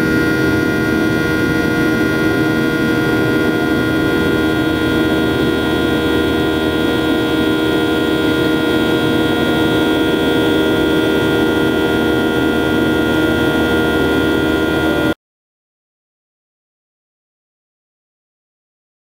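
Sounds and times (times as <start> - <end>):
jet engines droning: 0.0 - 15.2
steady tones: 0.0 - 15.2.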